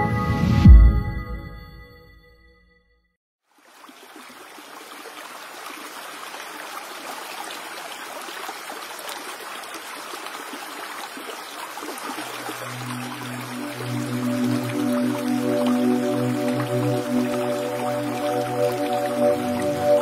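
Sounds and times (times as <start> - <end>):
water splashing over rocks: 3.4 - 20.0
low sustained music notes: 12.4 - 20.0.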